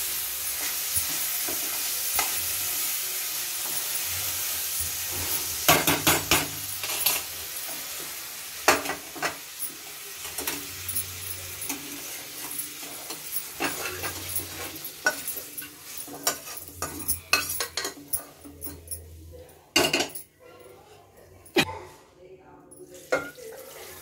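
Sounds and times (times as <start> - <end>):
food sizzling in pan: 0.0 - 18.4, 23.0 - 24.0
metal clinks: 9.6 - 20.3
metal spoon scraping pan: 10.2 - 19.1.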